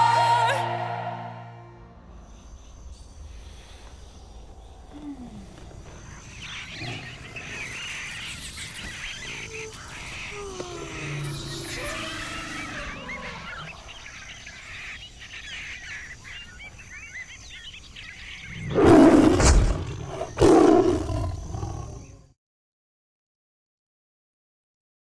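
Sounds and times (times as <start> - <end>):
birds chirping faintly: 1.7 - 22.4
big cat roaring: 4.9 - 8.2, 9.1 - 14.0, 18.6 - 22.3.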